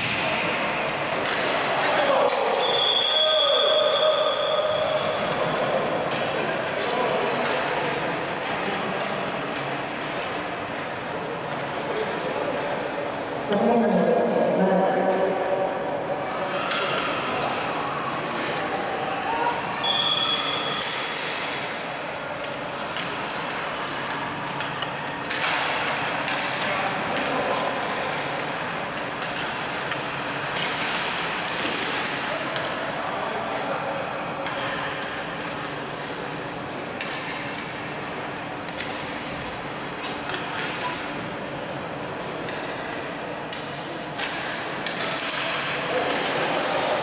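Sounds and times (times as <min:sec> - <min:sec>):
sticks clacking on puck and ice: 0:00.8 - 0:03.2, 0:20.3 - 0:32.8, 0:36.8 - 0:37.9, 0:38.6 - 0:46.9.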